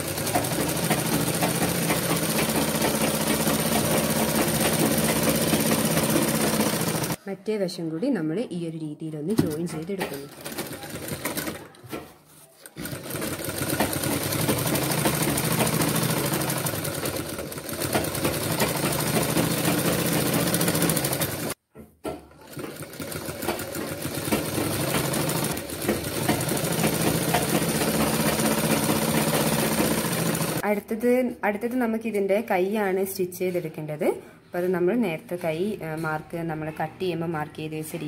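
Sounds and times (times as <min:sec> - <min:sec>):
sewing machine stitching: 0:00.0 - 0:07.2, 0:09.5 - 0:21.6, 0:22.3 - 0:30.6.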